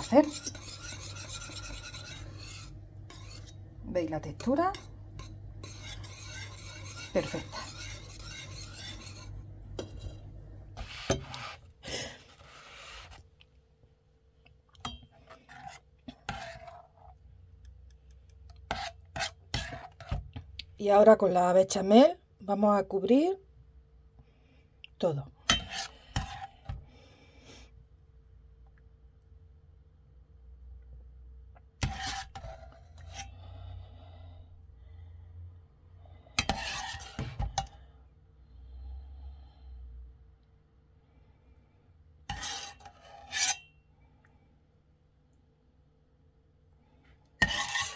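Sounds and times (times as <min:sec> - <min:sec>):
utensil scraping a pan: 0:00.0 - 0:13.2, 0:14.8 - 0:17.2, 0:18.6 - 0:20.3, 0:25.5 - 0:26.8, 0:31.8 - 0:33.5, 0:36.3 - 0:37.8, 0:42.2 - 0:43.7, 0:47.4 - 0:47.9.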